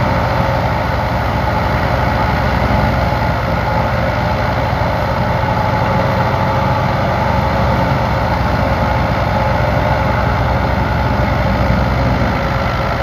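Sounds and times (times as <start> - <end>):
threshing machine humming: 0.0 - 13.0
tractor diesel engine running: 0.0 - 13.0.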